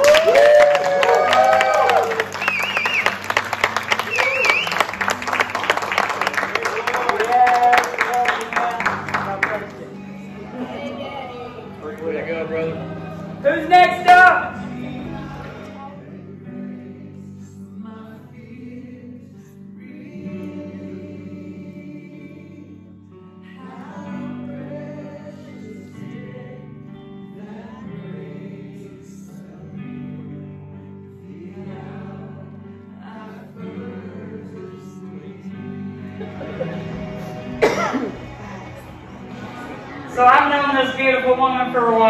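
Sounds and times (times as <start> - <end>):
choir singing: 4.6 - 42.0
instrumental accompaniment: 35.0 - 42.0.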